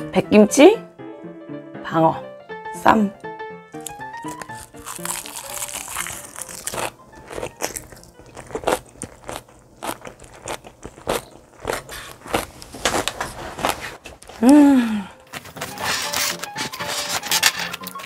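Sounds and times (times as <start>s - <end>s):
wet crunchy chewing: 3.8s - 14.0s.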